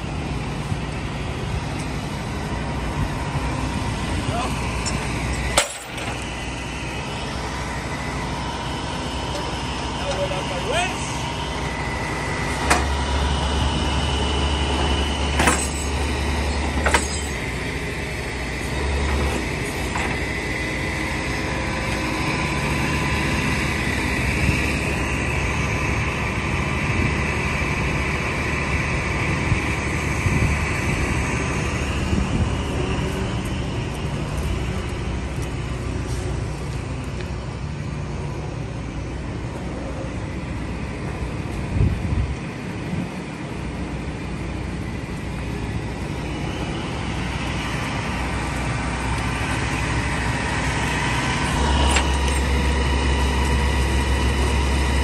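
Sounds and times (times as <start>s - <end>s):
truck engine running: 0.0s - 55.0s.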